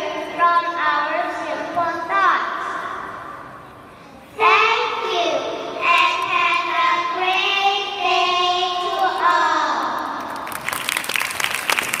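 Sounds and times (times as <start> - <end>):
applause: 10.2 - 12.0.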